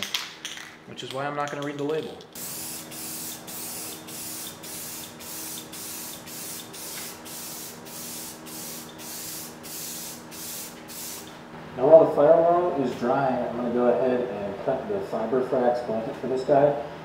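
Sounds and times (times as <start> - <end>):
spray paint can hissing: 2.4 - 11.3.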